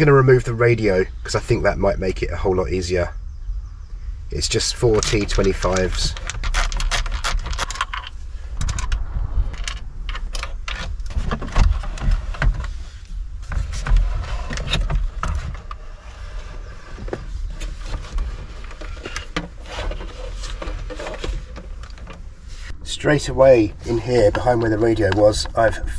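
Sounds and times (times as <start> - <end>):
clicks knocks and scrapes: 4.9 - 22.2
screwdriver turning screws: 6.2 - 8.1.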